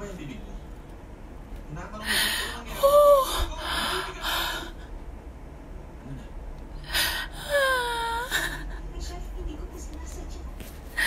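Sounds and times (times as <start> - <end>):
woman whimpering: 2.7 - 4.7, 6.9 - 8.8
woman sobbing breaths: 6.9 - 8.8.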